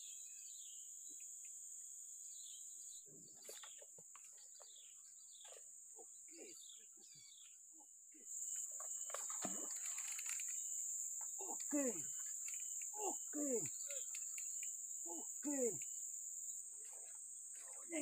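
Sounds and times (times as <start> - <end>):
insects droning: 0.0 - 18.0
short chirping calls: 8.2 - 18.0.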